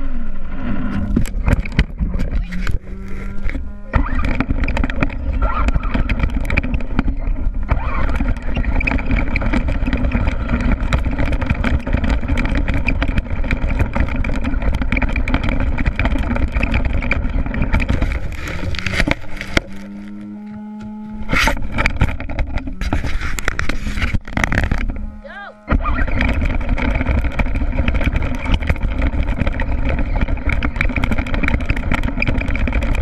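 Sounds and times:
chassis and tyres rattling: 0:00.0 - 0:33.0
rc truck motor running: 0:00.0 - 0:33.0.

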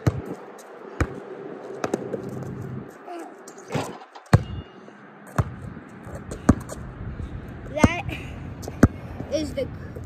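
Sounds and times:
basketball bouncing: 0:00.0 - 0:00.4, 0:01.0 - 0:01.2, 0:01.8 - 0:02.2, 0:03.7 - 0:04.7, 0:05.3 - 0:06.8, 0:08.6 - 0:09.3.

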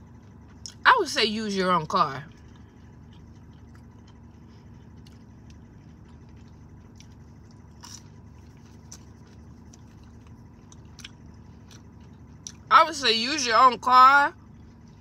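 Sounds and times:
car cabin hum: 0:00.0 - 0:15.0
chewing mouth clicks: 0:02.3 - 0:12.7.

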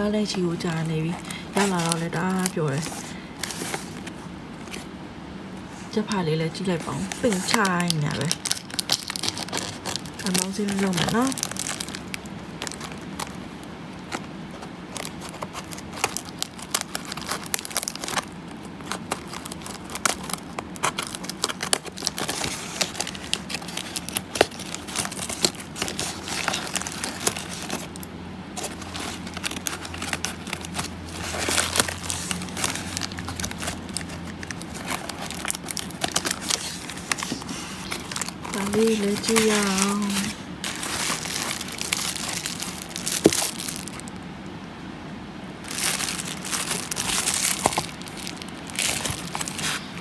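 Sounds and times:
plastic and cardboard crinkling: 0:00.0 - 0:05.0, 0:05.7 - 0:44.2, 0:45.6 - 0:50.0.

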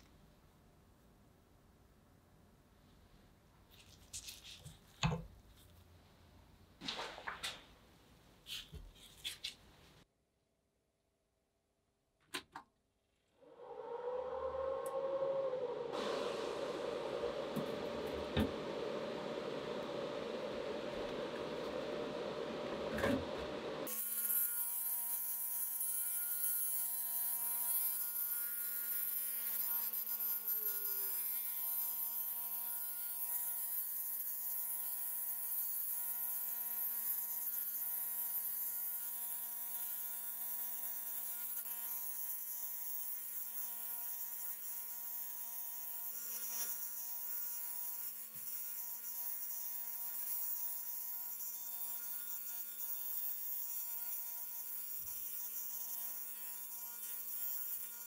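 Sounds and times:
high hiss: 0:13.4 - 0:23.8.

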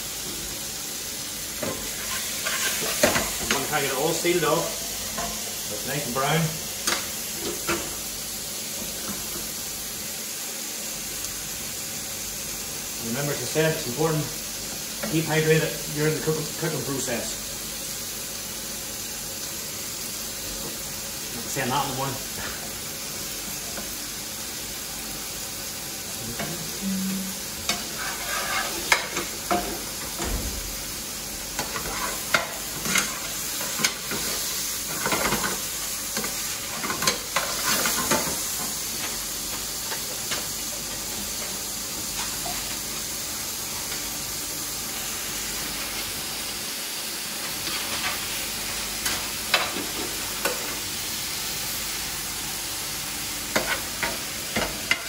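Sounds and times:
chicken sizzling in oil: 0:00.0 - 0:55.0
spoon scraping a pan: 0:01.7 - 0:03.7, 0:27.6 - 0:29.8, 0:31.6 - 0:35.6, 0:36.2 - 0:38.4.

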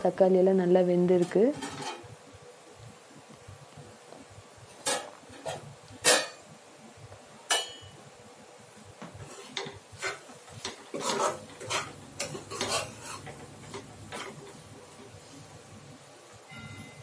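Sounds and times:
spoon scraping and clinking in pan: 0:09.5 - 0:14.6.

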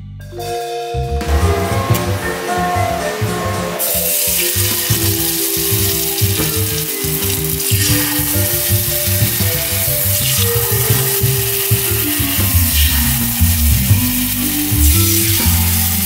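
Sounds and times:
background music: 0:00.0 - 0:16.0
batter sizzling in hot oil: 0:03.8 - 0:16.0.

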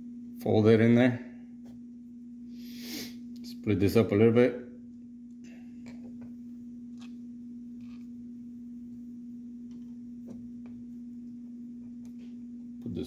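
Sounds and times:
steady low hum: 0:00.0 - 0:13.0
wires clicking and rustling: 0:05.3 - 0:08.2.

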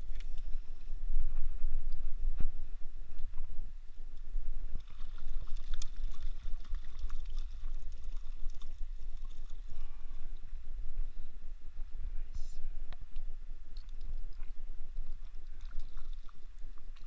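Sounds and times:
low microphone rumble: 0:00.0 - 0:17.0
small ticks: 0:04.2 - 0:09.6
water sloshing and splashing: 0:04.8 - 0:09.8, 0:13.8 - 0:17.0.

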